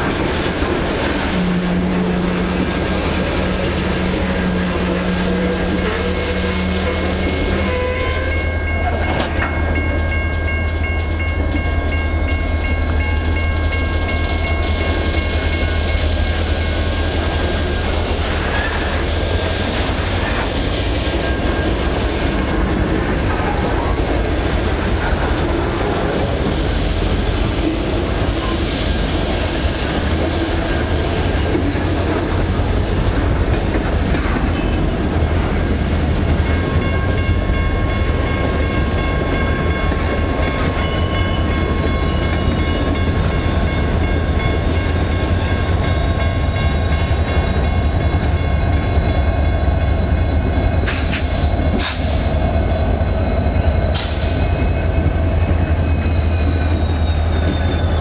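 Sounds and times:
freight train wheels rumbling: 0:00.0 - 0:58.0
high-pitched wheel squeal: 0:03.9 - 0:08.6, 0:27.2 - 0:30.8, 0:34.5 - 0:35.4, 0:49.1 - 0:58.0.

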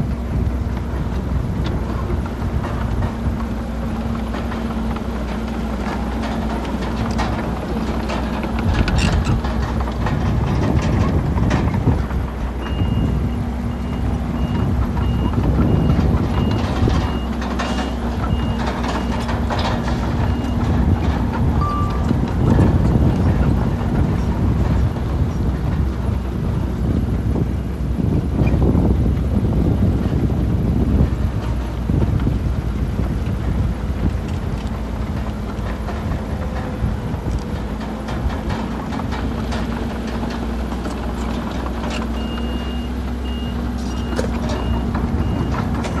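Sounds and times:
heavy diesel engines under load: 0:00.0 - 0:46.0
reversing alarm beeping: 0:12.6 - 0:19.4, 0:20.2 - 0:23.3, 0:42.1 - 0:46.0.

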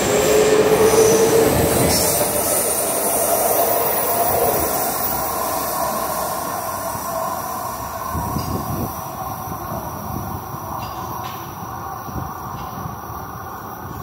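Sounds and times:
wheels squealing on rail: 0:00.0 - 0:09.5
metro train rumble: 0:00.0 - 0:14.0.

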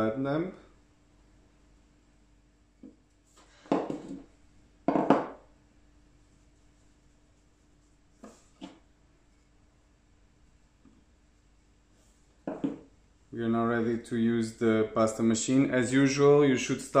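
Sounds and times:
rolling pin knocking: 0:03.7 - 0:04.3, 0:04.9 - 0:05.4, 0:12.4 - 0:12.9.

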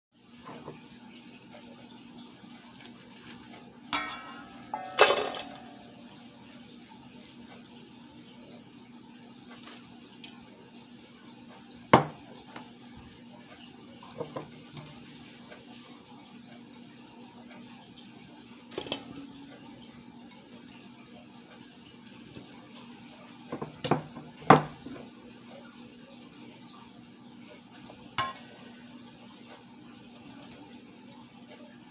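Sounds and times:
steel bowl knocked and ringing: 0:04.0 - 0:06.0, 0:28.2 - 0:28.5
knocks on metal bowl: 0:12.0 - 0:12.2.

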